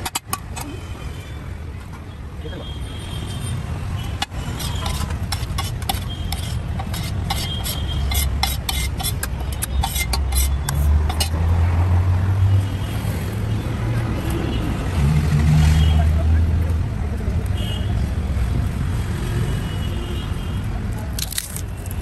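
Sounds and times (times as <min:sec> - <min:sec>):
metal spatula clacking on griddle: 0:00.0 - 0:00.7, 0:04.2 - 0:11.4.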